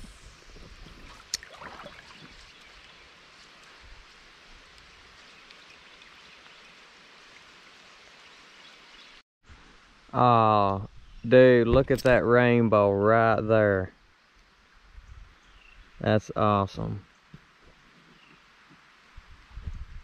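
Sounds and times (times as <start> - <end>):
water splashing: 0.6 - 2.9
river water rippling over rocks: 0.7 - 8.9.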